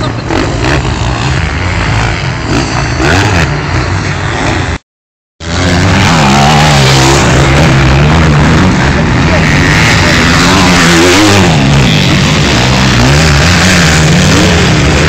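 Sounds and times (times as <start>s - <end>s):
motorcycle engine wavering pitch: 0.0s - 4.8s
motorcycle engines revving: 0.0s - 4.8s, 5.4s - 15.0s.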